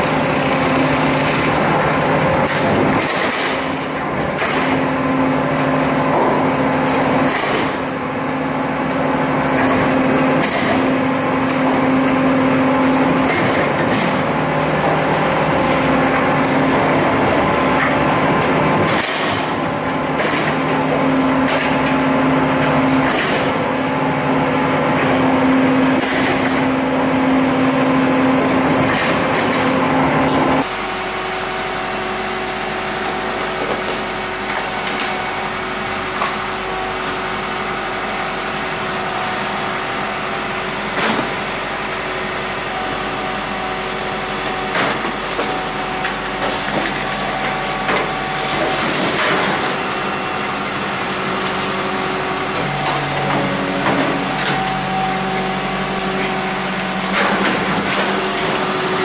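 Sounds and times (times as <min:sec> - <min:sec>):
crane garbage truck humming: 0:00.0 - 0:59.0
garbage truck engine and hydraulics hum: 0:00.0 - 0:59.0.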